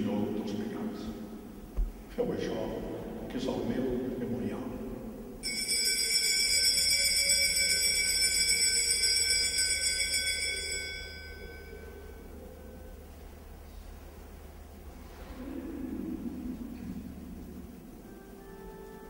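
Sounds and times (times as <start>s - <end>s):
altar bell ringing: 5.4s - 12.5s.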